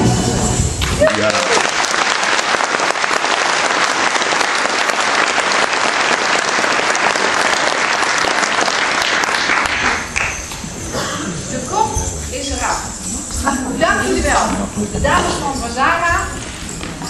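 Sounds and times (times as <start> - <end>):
audience applauding: 0.8 - 10.6.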